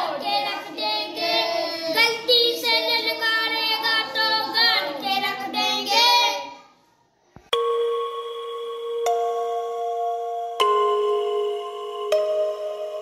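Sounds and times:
boys singing together: 0.0 - 6.6.

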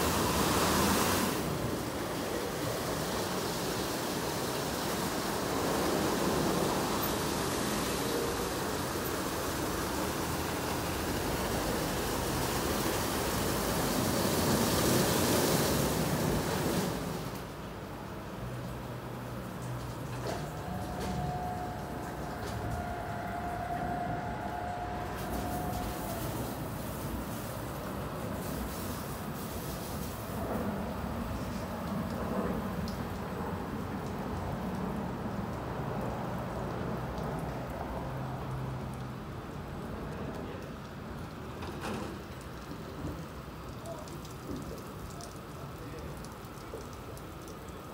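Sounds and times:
spraying water: 0.0 - 47.9
low machine hum: 19.6 - 27.3.

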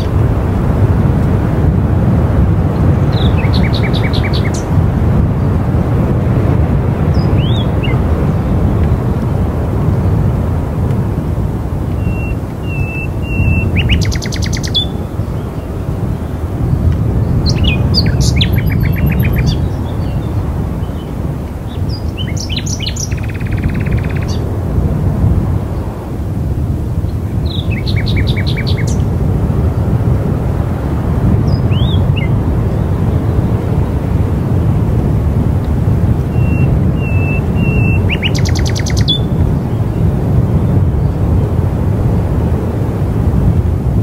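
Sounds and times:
songbirds chirping and trilling: 0.0 - 0.7, 2.8 - 5.7, 6.8 - 10.2, 11.6 - 24.6, 27.0 - 30.1, 31.4 - 34.1, 36.2 - 41.4
low wind rumble: 0.0 - 44.0
songbird whistling and trilling: 7.2 - 8.0, 12.0 - 15.0, 17.4 - 20.2, 21.8 - 24.4, 27.5 - 29.0, 36.3 - 39.4.

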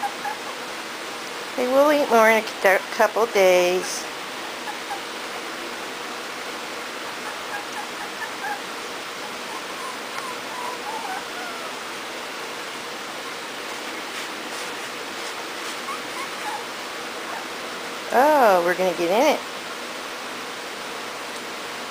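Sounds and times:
puppies squeaking: 0.0 - 0.6, 4.4 - 5.3, 7.0 - 11.9, 13.1 - 17.6.

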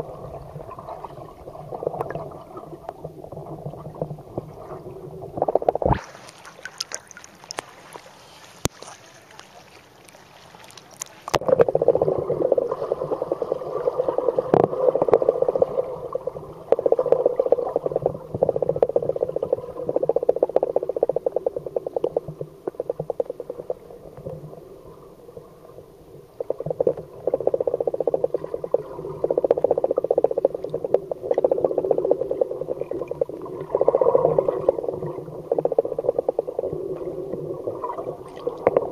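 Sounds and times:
muffled underwater noise: 10.7 - 38.9.

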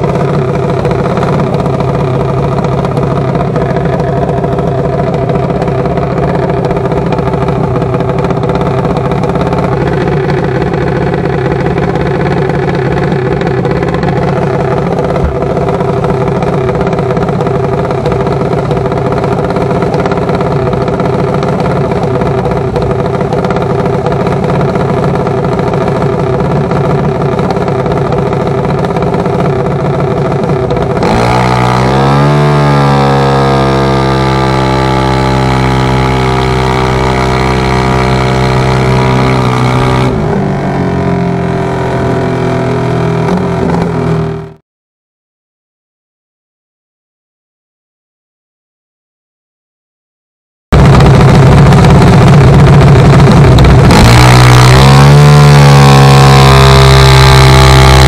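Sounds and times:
dragster engine idling and revving: 0.0 - 44.6, 50.8 - 58.0.

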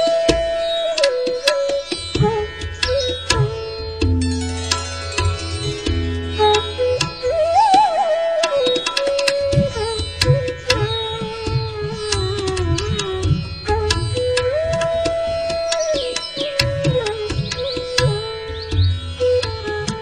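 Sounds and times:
indian classical melody: 0.0 - 20.0
tabla drum strokes: 0.0 - 20.0.

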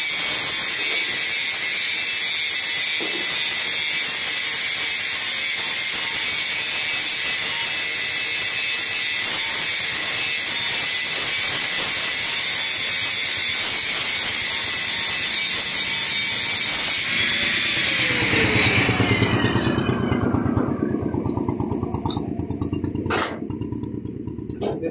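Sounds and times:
welding arc crackling hiss: 0.0 - 18.9
falling tones: 17.0 - 23.0.

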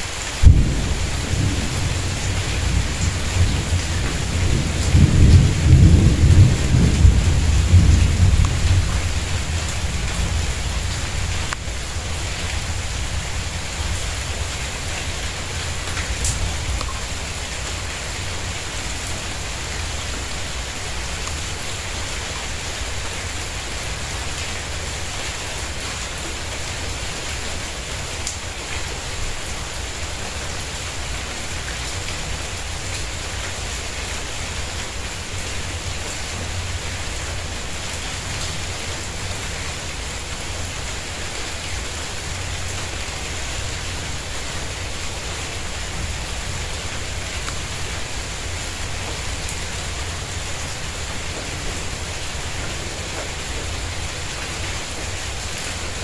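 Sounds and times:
rain on a tiled patio: 0.0 - 56.0
thunder rumbling: 0.4 - 19.7.

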